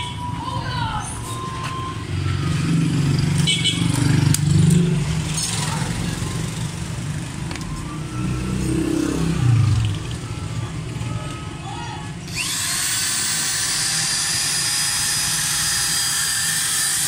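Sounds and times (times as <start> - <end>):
vehicle engines rumbling: 0.0 - 13.6.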